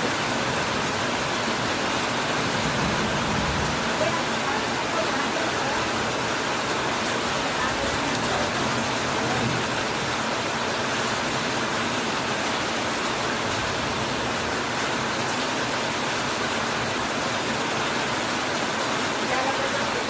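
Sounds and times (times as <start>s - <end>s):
heavy rain on metal roof: 0.0s - 20.0s.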